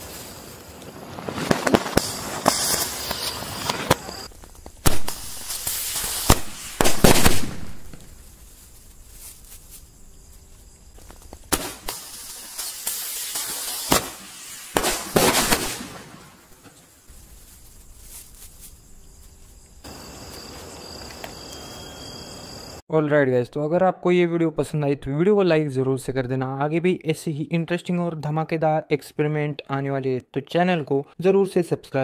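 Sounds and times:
hissing rush of sparks: 0.0 - 9.8, 11.3 - 18.2
firework bangs: 0.9 - 8.6, 11.3 - 16.7.

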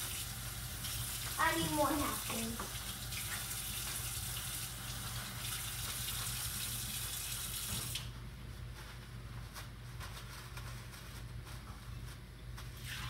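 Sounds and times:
water running from a tap: 0.0 - 8.1.

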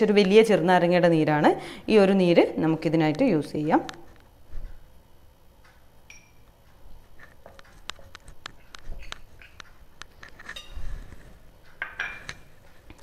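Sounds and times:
metal spoon clinking on glass: 6.1 - 6.4.

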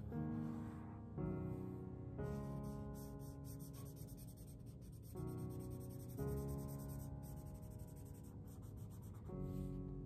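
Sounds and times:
piano music: 0.0 - 10.0
marker scratching on paper: 2.6 - 9.7.

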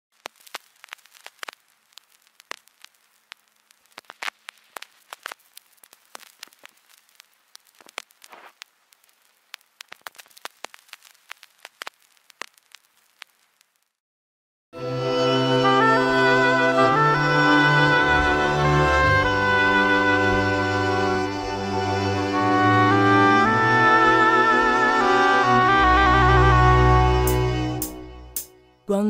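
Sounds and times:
vinyl crackles and pops: 0.1 - 14.0
faint hiss: 0.2 - 14.0.

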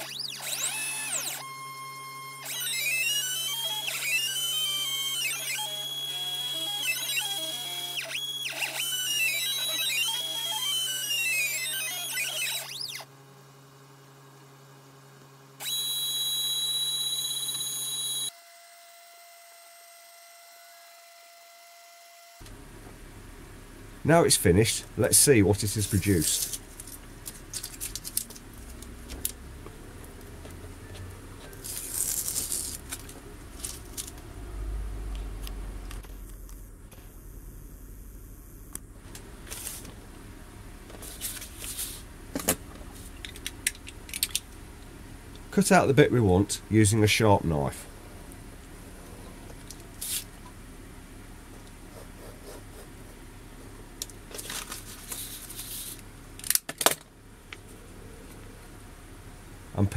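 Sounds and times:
vinyl sheet rustling: 31.5 - 34.2, 39.3 - 40.0, 40.9 - 42.1, 54.2 - 56.1
sharp clicks and crackles: 43.2 - 44.6.

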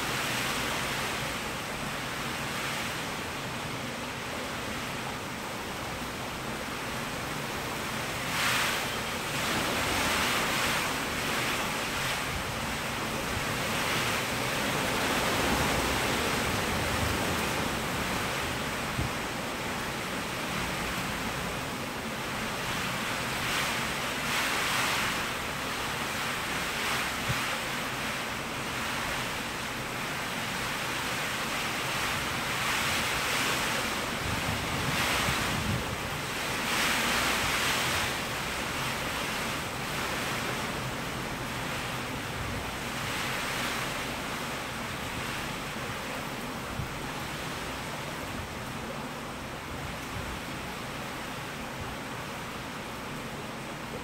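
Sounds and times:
heavy rain: 0.0 - 54.0
wind buffeting microphone: 31.5 - 45.8.

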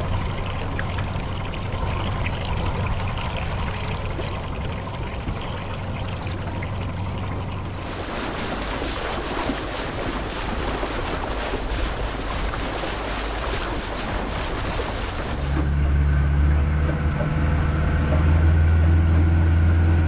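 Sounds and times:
low steady hum: 0.0 - 20.0
water splashing against boat: 0.0 - 20.0
wind on microphone: 7.8 - 16.2.

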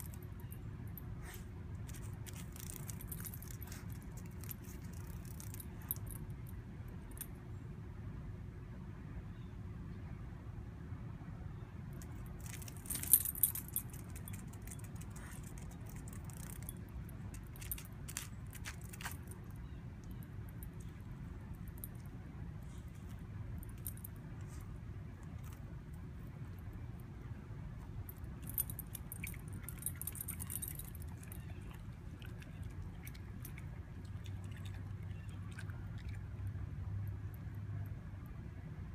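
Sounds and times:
dog collar tags jingling: 0.0 - 1.0, 1.8 - 6.3, 12.0 - 24.6, 27.8 - 35.4
steady low hum: 11.9 - 38.9
dog chewing insects: 27.8 - 36.4.

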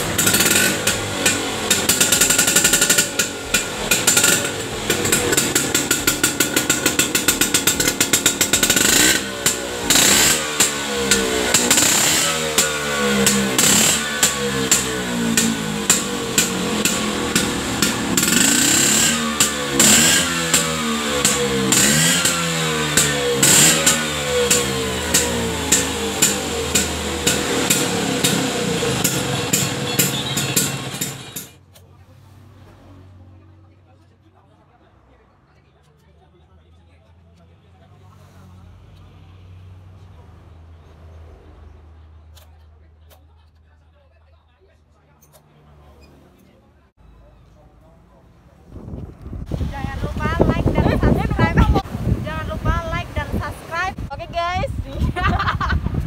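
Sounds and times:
scooter engine revving: 0.0 - 31.7, 49.3 - 54.2.

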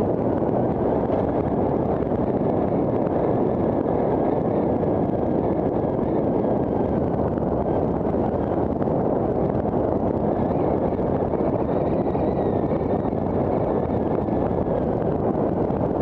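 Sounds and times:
wind rush on microphone: 0.0 - 16.0.

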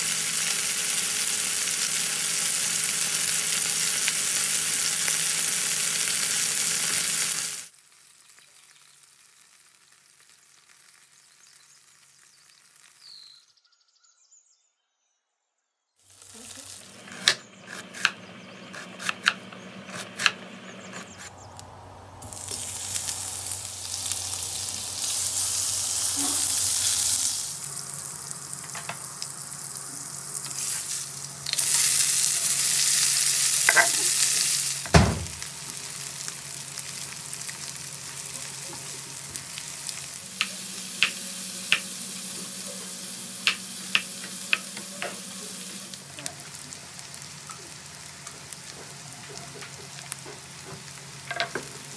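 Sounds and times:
onions sizzling in pan: 0.0 - 13.4, 16.0 - 19.2, 22.2 - 51.9
knife chopping on wooden board: 17.7 - 21.2
heavy thump: 34.9 - 35.4.

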